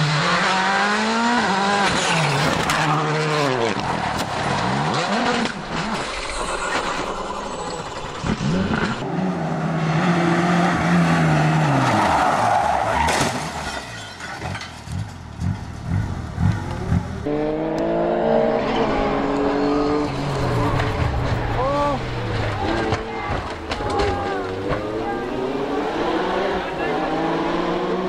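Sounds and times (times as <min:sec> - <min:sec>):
rally car engines revving: 0:00.0 - 0:13.8, 0:14.8 - 0:28.0
tyres squealing and skidding: 0:01.9 - 0:09.0, 0:10.1 - 0:14.7.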